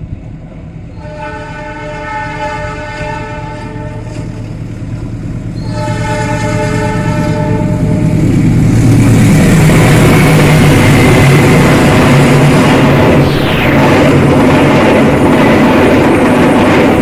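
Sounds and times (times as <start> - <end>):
rumble of passing train: 0.0 - 17.0
train horn blasts: 1.0 - 4.3, 5.6 - 8.2.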